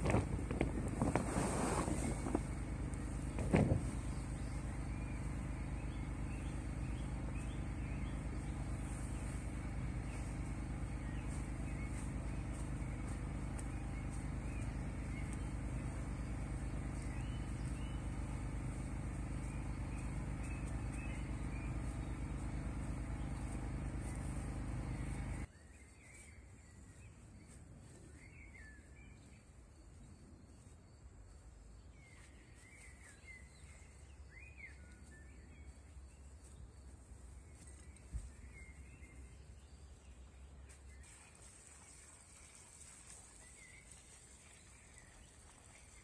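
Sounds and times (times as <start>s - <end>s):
lawnmower engine running: 0.0s - 25.5s.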